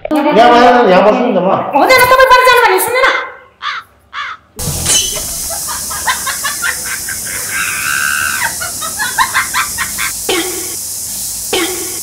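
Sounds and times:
background hiss: 0:03.9 - 0:12.0.

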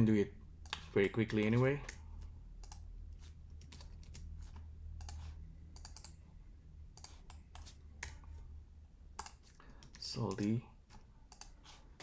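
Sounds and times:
steady low hum: 0:00.0 - 0:12.0
computer keyboard keystrokes: 0:02.6 - 0:02.8, 0:05.0 - 0:06.2, 0:09.2 - 0:10.6.

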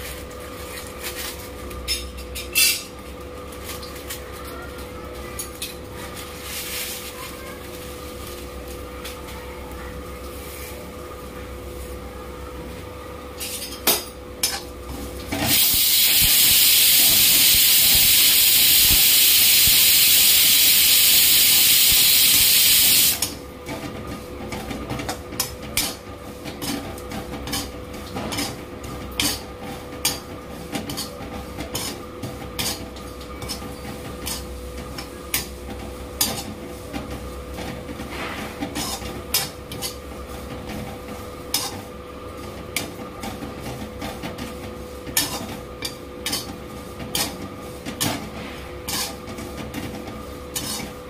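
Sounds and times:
pressure cooker hissing steam: 0:15.5 - 0:23.2.

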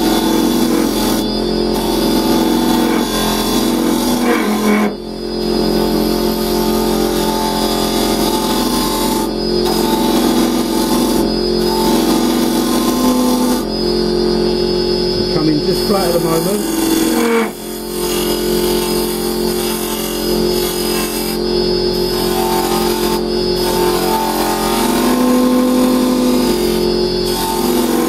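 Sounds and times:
chisel cutting wood: 0:00.0 - 0:28.0
wood lathe hum: 0:00.0 - 0:28.0.

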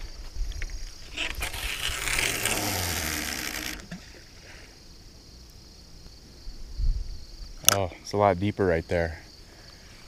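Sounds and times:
crickets chirping: 0:00.0 - 0:10.0
fishing line hissing off reel: 0:01.0 - 0:04.5.

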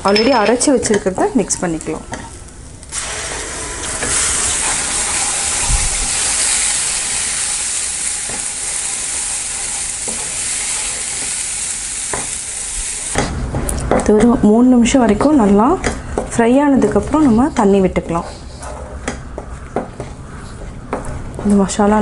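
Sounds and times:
paste sizzling in hot oil: 0:02.9 - 0:13.3
wooden spatula stirring: 0:16.2 - 0:21.7.

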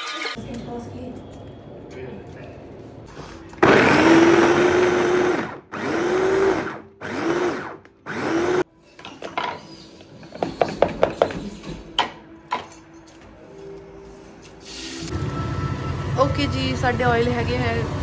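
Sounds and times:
kitchen chopper motor whine: 0:03.6 - 0:08.6.

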